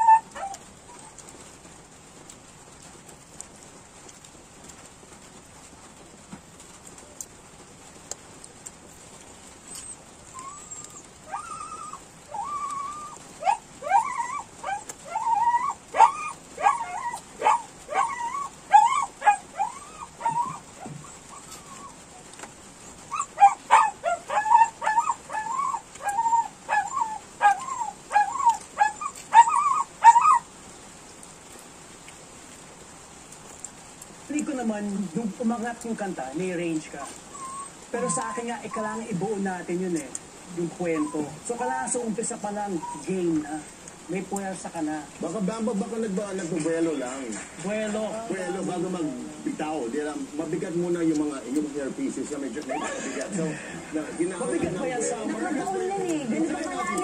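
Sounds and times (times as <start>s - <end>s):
dog whimpering and yipping: 0.0s - 1.3s, 9.6s - 30.5s, 37.1s - 39.1s, 40.7s - 41.7s, 42.7s - 43.2s, 52.6s - 53.2s, 54.0s - 57.0s.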